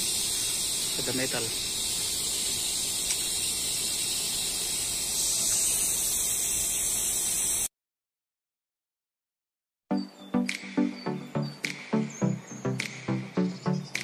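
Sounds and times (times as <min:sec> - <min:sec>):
steady hiss: 0:00.0 - 0:07.7.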